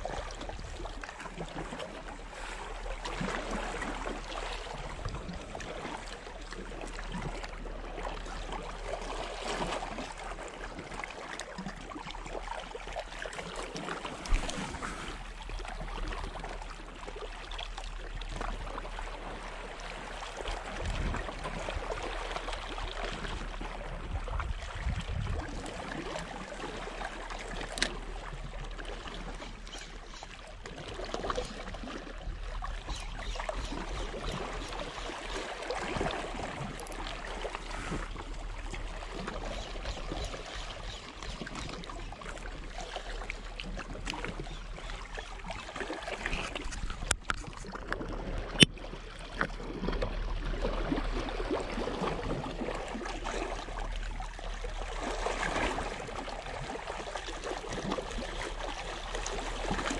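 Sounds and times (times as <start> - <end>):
waves lapping against rocks: 0.0 - 59.9.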